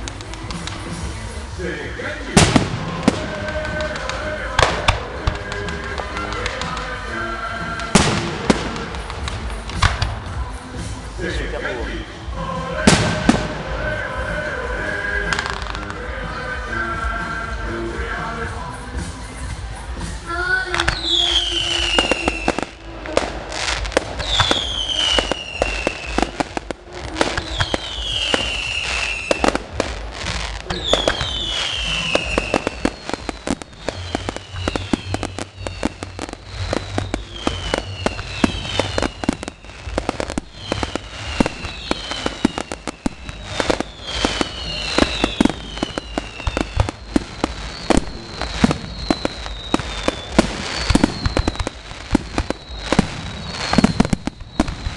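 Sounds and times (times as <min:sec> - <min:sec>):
fireworks bangs and crackling: 0:00.0 - 0:54.9
whistling firework shell: 0:20.8 - 0:54.9.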